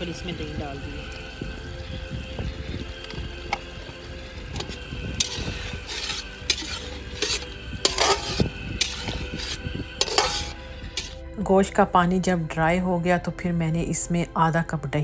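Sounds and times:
gravy sizzling: 0:00.0 - 0:11.2
metal turner scraping a pan: 0:03.0 - 0:11.2.

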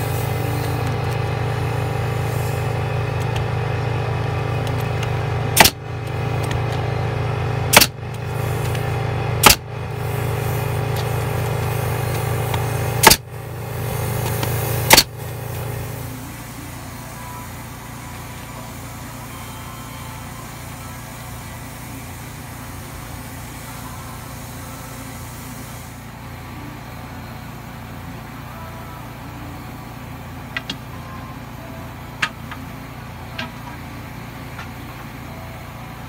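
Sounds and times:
low machine drone: 0:00.0 - 0:36.0
nail gun firing: 0:05.6 - 0:05.8, 0:07.7 - 0:08.0, 0:09.4 - 0:09.6, 0:13.0 - 0:13.2, 0:14.3 - 0:15.1.

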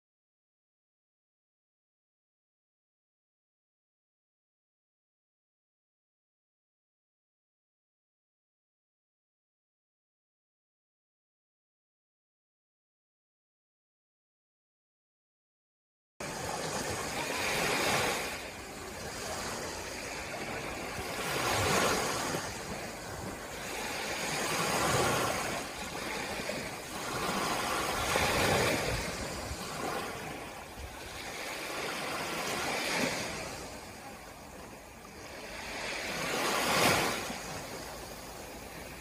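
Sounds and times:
small waves on sandy beach: 0:16.2 - 0:39.0.

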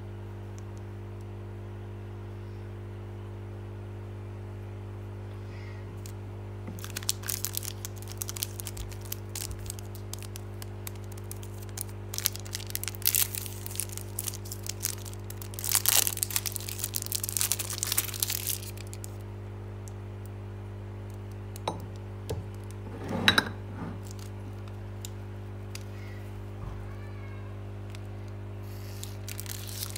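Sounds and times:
steady low hum: 0:00.0 - 0:29.9
plastic wrapper crinkling and tearing: 0:06.0 - 0:19.3, 0:24.0 - 0:25.9, 0:27.9 - 0:29.9.

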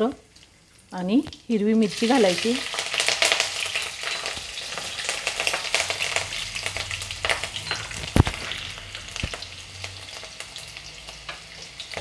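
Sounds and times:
spices sizzling in hot oil: 0:00.0 - 0:12.0
oil popping and spattering: 0:02.7 - 0:10.3.

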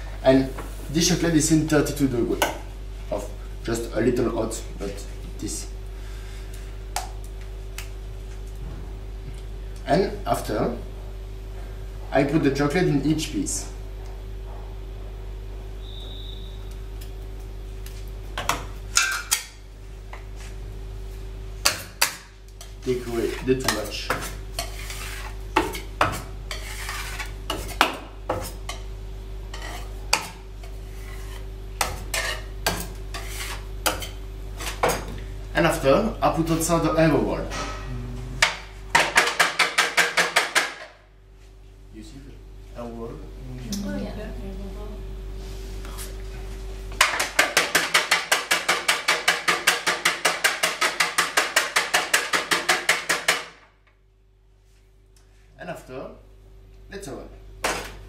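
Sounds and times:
low electrical hum: 0:00.0 - 0:58.0
metal scraper scraping chocolate: 0:22.0 - 0:28.6, 0:29.5 - 0:34.8, 0:47.1 - 0:53.4.

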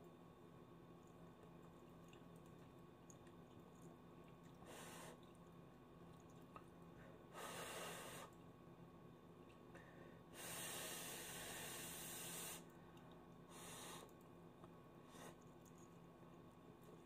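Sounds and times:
breathing through the nose: 0:07.0 - 0:08.4, 0:09.8 - 0:12.7, 0:13.5 - 0:14.1.

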